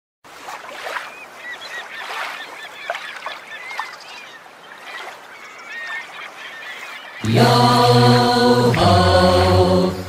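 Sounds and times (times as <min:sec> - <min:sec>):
flock of birds calling: 0:00.8 - 0:08.0.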